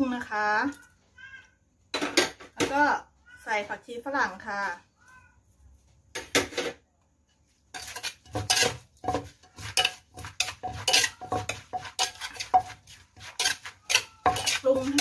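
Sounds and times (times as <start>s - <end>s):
spoon tossing salad: 7.6s - 15.0s
wooden pestle pounding in mortar: 7.8s - 15.0s.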